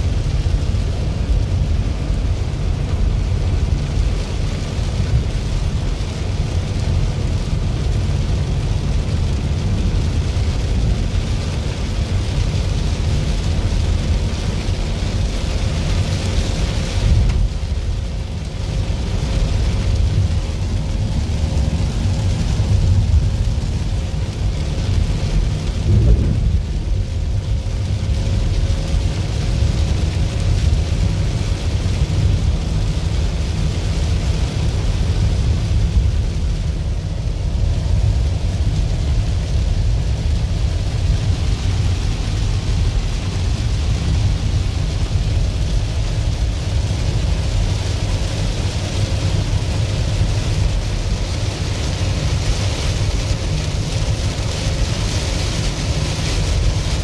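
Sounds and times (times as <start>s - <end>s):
deep rumble: 0.0s - 57.0s
heavy rain: 0.0s - 57.0s
low thump: 25.8s - 27.0s.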